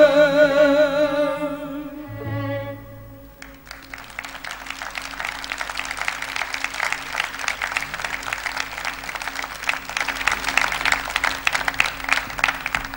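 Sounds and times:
audience applauding: 3.3s - 12.9s.

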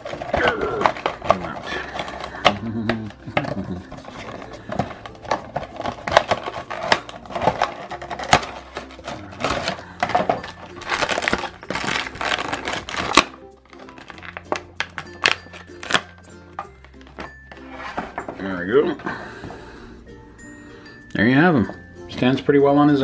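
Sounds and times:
plastic packaging crinkling: 0.0s - 18.2s
light background music: 0.0s - 23.0s.

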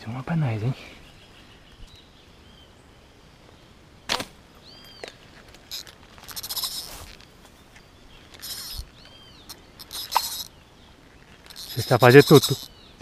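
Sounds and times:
fishing line paying out from reel: 5.7s - 7.2s, 8.3s - 8.9s, 9.5s - 10.5s, 11.4s - 12.7s.

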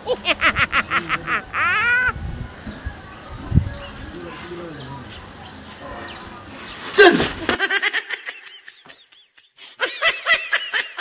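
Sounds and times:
high-pitched snickering laugh: 0.0s - 2.2s, 7.4s - 11.0s.

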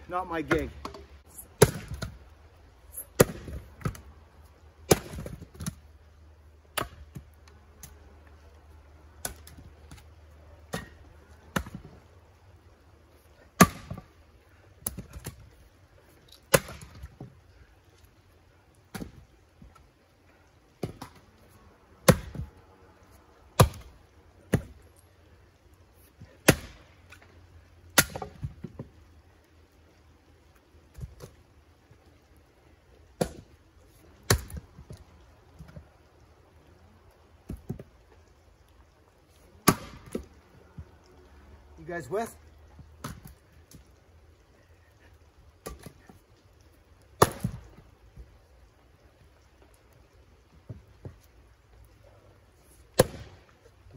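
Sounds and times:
axe chopping firewood: 0.4s - 2.2s, 3.0s - 4.0s, 4.8s - 5.8s, 6.7s - 8.0s, 9.2s - 11.9s, 13.5s - 14.2s, 14.8s - 15.4s, 16.3s - 17.3s, 18.9s - 19.8s, 20.8s - 21.2s, 22.0s - 22.5s, 23.6s - 24.8s, 26.3s - 27.2s, 27.9s - 28.9s, 33.2s - 33.6s, 34.2s - 35.0s, 37.4s - 37.9s, 39.6s - 40.3s, 43.0s - 43.4s, 45.6s - 46.2s, 47.2s - 47.8s, 52.9s - 53.5s.

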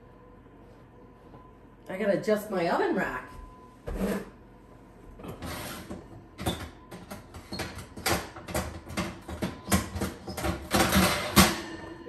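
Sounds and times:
oven rack clanking and scraping: 7.4s - 12.0s.

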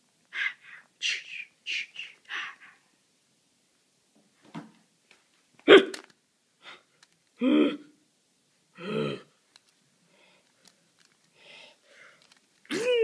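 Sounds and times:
short pitched vocal sounds: 0.4s - 2.8s, 7.4s - 8.0s, 8.8s - 9.4s
person crying out sharply: 12.7s - 13.0s.

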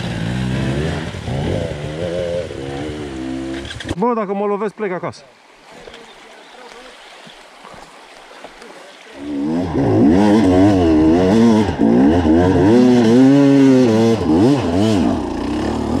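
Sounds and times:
motorcycle engine revving: 0.0s - 4.0s, 9.2s - 16.0s.

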